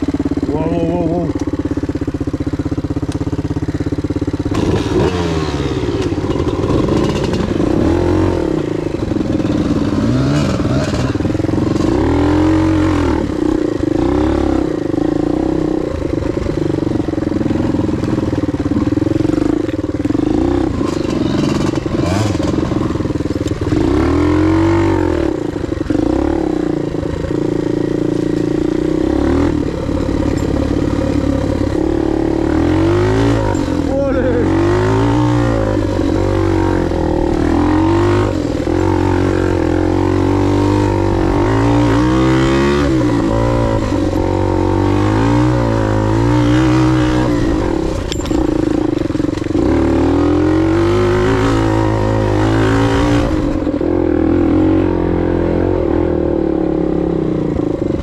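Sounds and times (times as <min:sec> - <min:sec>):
trail bike engine revving: 0:00.0 - 0:58.0
bike clatter: 0:47.9 - 0:49.6.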